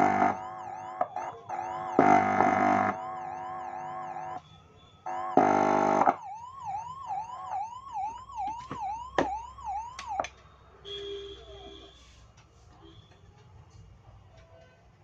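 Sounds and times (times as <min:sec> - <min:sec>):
electronic siren wail: 0:00.0 - 0:10.3
harsh buzzing blast: 0:05.1 - 0:06.1.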